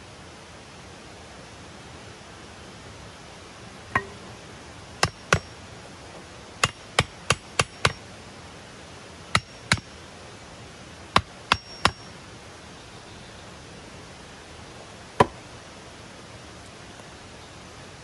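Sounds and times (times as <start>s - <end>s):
hatchet knocking wooden stake: 4.0s - 4.2s, 5.0s - 5.5s, 6.6s - 8.0s, 9.4s - 9.9s, 11.2s - 12.1s, 15.2s - 15.4s.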